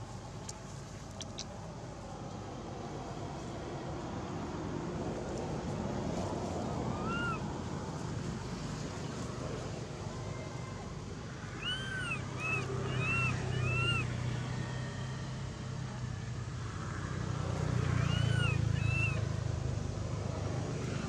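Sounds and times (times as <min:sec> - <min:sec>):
low engine hum: 0:00.0 - 0:21.0
short high arched calls: 0:11.6 - 0:14.1.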